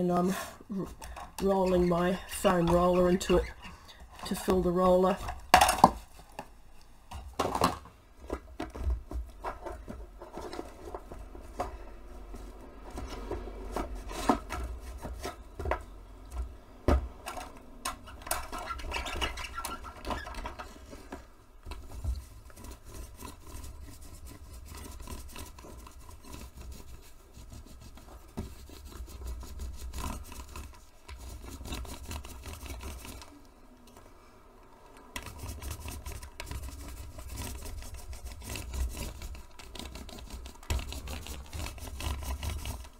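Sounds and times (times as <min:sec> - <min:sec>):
paint roller scratchy rubbing: 0:00.0 - 0:05.3, 0:18.0 - 0:21.1, 0:21.8 - 0:33.4, 0:35.1 - 0:42.9.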